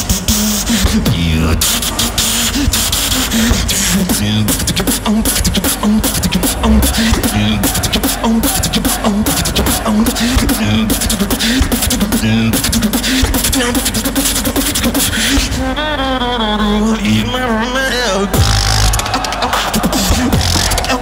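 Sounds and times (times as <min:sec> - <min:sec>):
beatboxing percussive clicks: 0:00.0 - 0:15.6, 0:18.4 - 0:21.0
pitched bass line: 0:02.6 - 0:12.8, 0:18.4 - 0:21.0.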